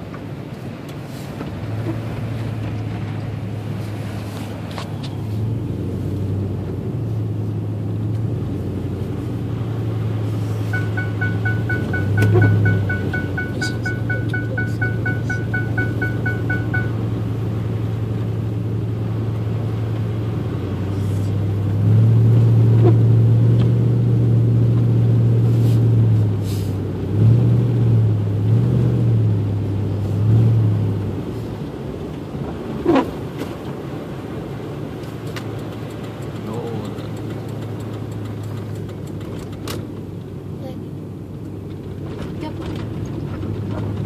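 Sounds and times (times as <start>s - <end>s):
truck engine and road noise: 0.0s - 44.0s
high electronic beeps: 10.7s - 17.1s.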